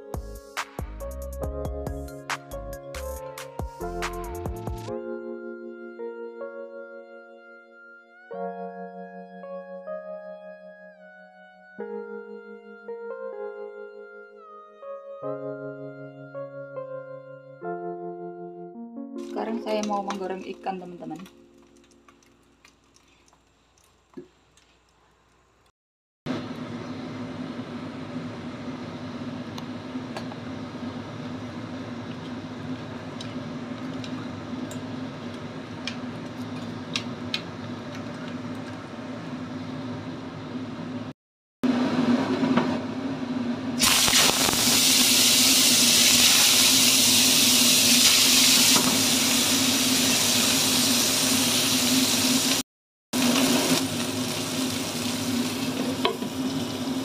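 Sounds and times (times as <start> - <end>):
fish sizzling in hot oil: 43.8 - 52.6, 53.2 - 57.0.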